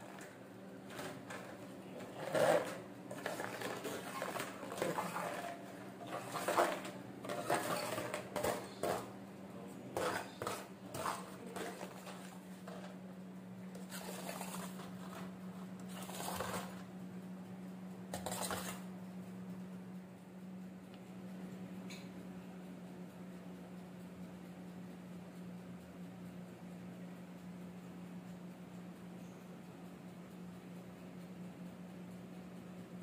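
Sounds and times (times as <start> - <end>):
steady low hum: 0.0 - 33.0
cookies clicking on wire rack: 0.9 - 9.2.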